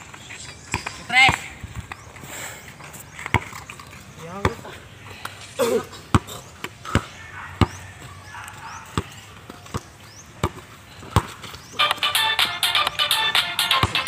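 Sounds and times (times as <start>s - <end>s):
basketball bouncing on dirt: 0.6s - 2.0s, 3.1s - 5.4s, 6.0s - 12.0s
music: 11.8s - 14.0s.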